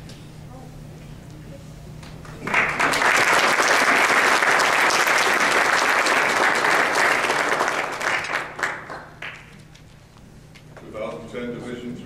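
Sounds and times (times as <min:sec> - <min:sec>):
audience applauding: 0:02.2 - 0:09.6.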